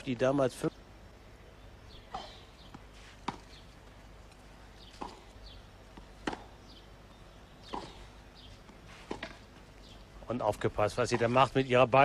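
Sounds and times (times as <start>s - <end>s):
faint steady hum: 0.0s - 12.0s
tennis ball struck by rackets: 2.1s - 3.7s, 4.8s - 6.8s, 7.6s - 9.5s.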